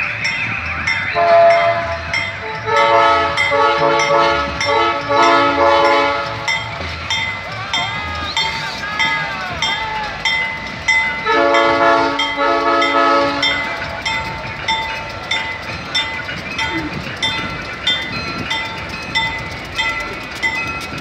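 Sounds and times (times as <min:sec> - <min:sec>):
bell ringing: 0:00.0 - 0:21.0
train rolling past: 0:00.0 - 0:21.0
locomotive air horn: 0:01.2 - 0:06.6, 0:11.2 - 0:13.8.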